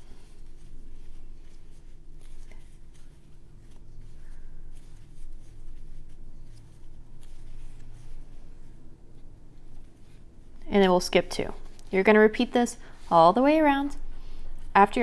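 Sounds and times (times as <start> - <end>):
crochet hook scratching yarn: 0.0 - 13.8
low steady hum: 0.0 - 15.0.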